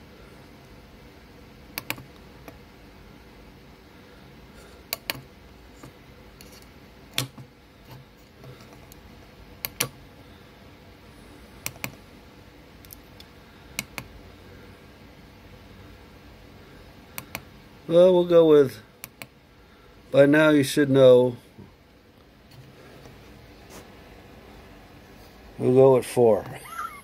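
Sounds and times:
push buttons clicking: 0:09.6 - 0:10.0.

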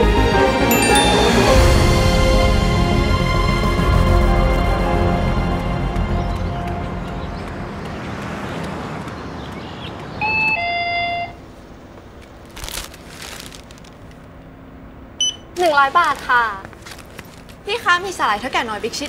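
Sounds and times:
music: 0:00.0 - 0:07.8.

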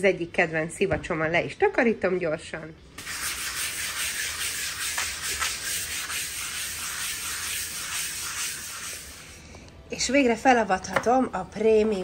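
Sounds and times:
sponge scrubbing a surface: 0:03.0 - 0:09.4.

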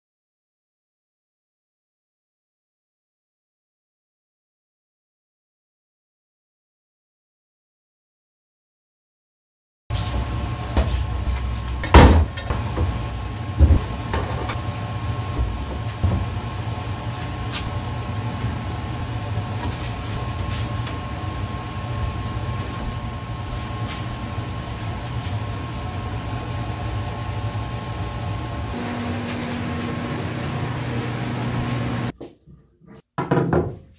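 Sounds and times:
steady low hum: 0:09.9 - 0:32.1.

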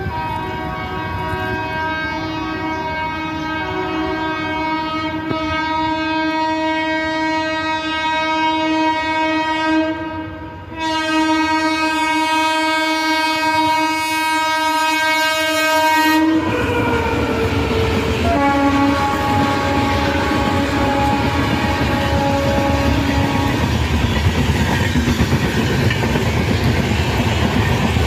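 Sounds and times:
locomotive horn: 0:00.0 - 0:24.2
train coaches rushing past: 0:14.7 - 0:28.0.

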